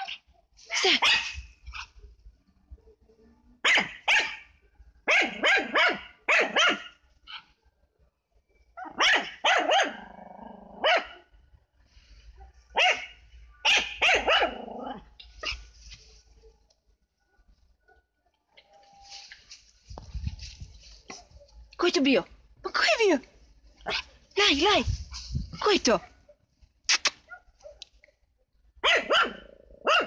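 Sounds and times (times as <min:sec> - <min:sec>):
small dog barking: 0:00.8 - 0:01.9, 0:03.6 - 0:07.5, 0:08.8 - 0:10.1, 0:10.7 - 0:11.3, 0:12.7 - 0:15.6, 0:28.8 - 0:30.0.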